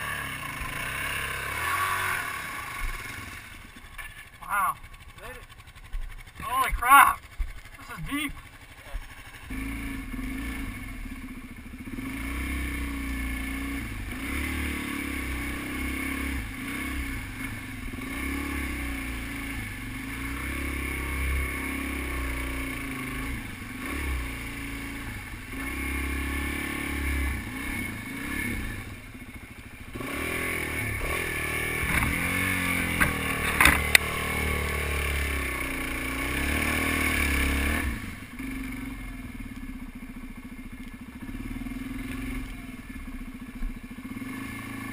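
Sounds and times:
motorcycle engine revving: 0:00.0 - 0:44.9
sharp knocks: 0:31.8 - 0:32.3.

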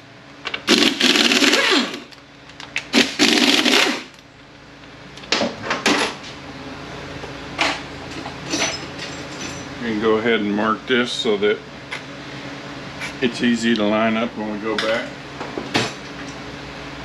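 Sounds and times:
small power tool running: 0:00.7 - 0:02.1, 0:02.9 - 0:04.2.

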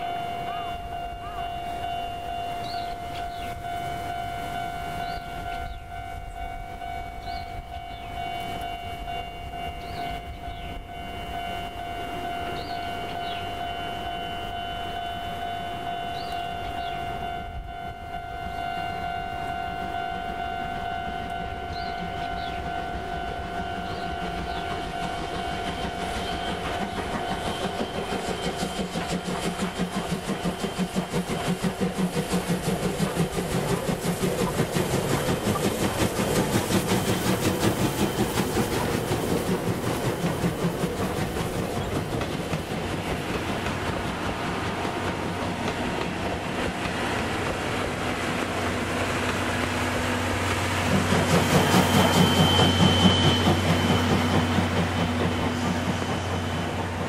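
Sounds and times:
steam exhaust chuffs: 0:00.0 - 0:57.0
steam locomotive whistle: 0:00.0 - 0:57.0
wheels clattering over rail joints: 0:21.8 - 0:57.0.

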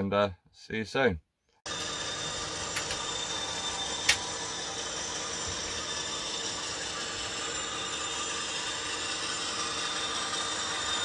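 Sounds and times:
model train running: 0:01.7 - 0:11.0.

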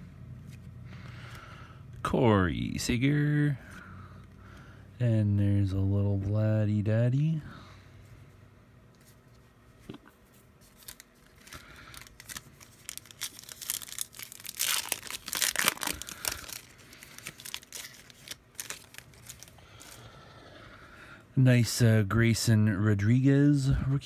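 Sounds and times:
wrapper tearing and crinkling: 0:10.6 - 0:20.0.

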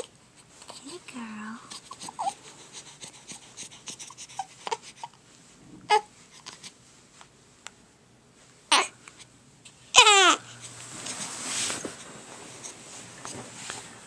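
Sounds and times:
baby grunting and squeaking: 0:01.7 - 0:02.4, 0:08.7 - 0:09.0, 0:09.9 - 0:10.5
baby squealing: 0:10.0 - 0:10.4.

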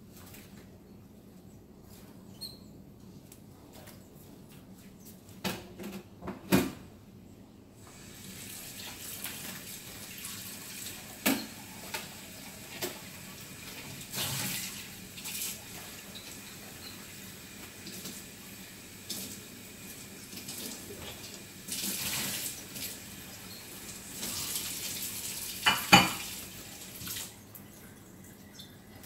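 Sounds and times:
tap water running into sink: 0:20.1 - 0:27.3.

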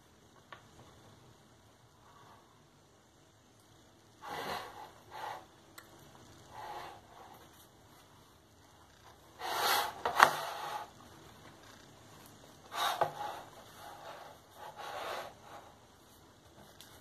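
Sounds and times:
bread rubbing and scraping on plate: 0:04.2 - 0:05.5, 0:06.4 - 0:08.1, 0:09.1 - 0:11.4, 0:12.5 - 0:16.1.

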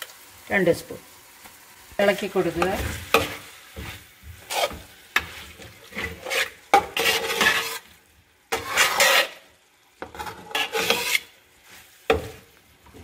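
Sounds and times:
metal spoon scraping metal pot: 0:05.9 - 0:07.9, 0:08.5 - 0:09.4, 0:10.1 - 0:11.3.

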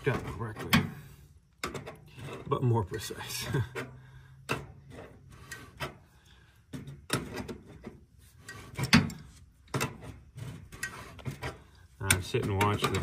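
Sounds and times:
wrench clicks and scrapes on metal: 0:07.1 - 0:13.0.

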